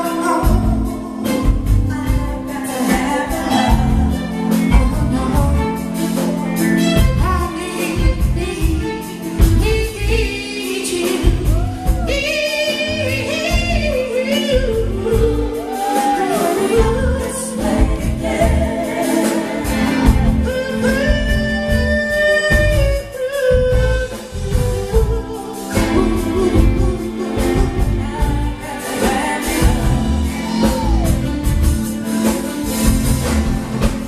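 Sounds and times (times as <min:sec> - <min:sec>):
live band playing: 0:00.0 - 0:34.0
man singing: 0:10.8 - 0:19.4, 0:20.0 - 0:31.5.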